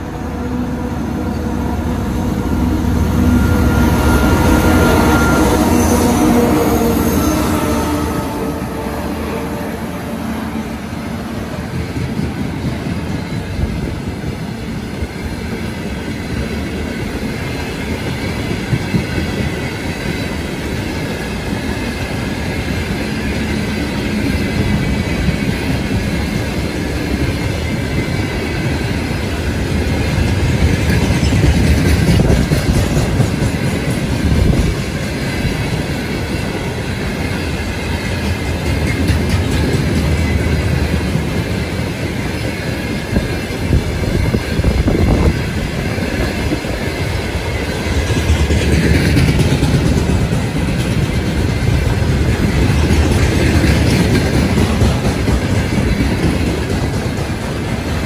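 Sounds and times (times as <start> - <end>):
train wheels rumbling on rails: 0.0 - 58.0.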